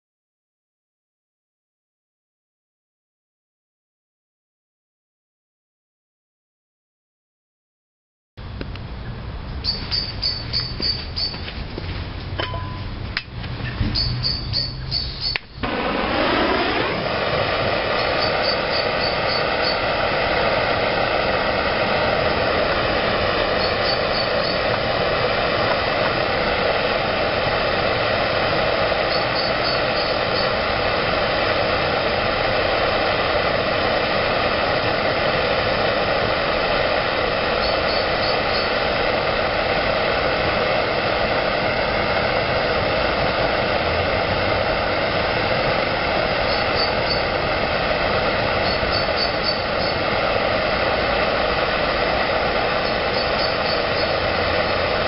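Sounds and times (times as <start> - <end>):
blowtorch hissing: 13.5 - 55.0.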